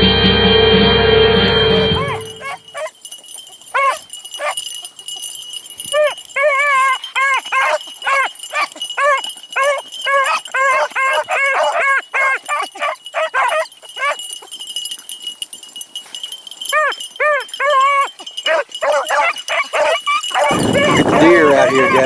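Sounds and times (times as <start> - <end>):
beagles baying: 1.4 - 3.0, 3.6 - 4.7, 5.8 - 14.6, 16.6 - 22.0.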